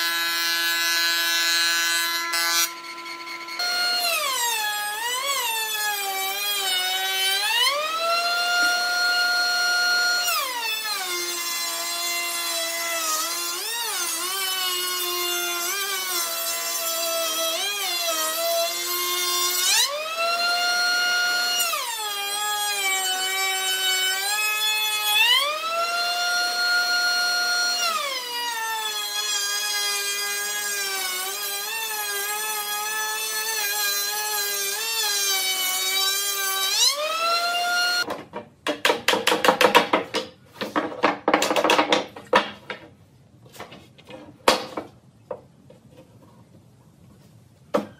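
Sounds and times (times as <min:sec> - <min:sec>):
router whining through wood: 0:00.0 - 0:38.1.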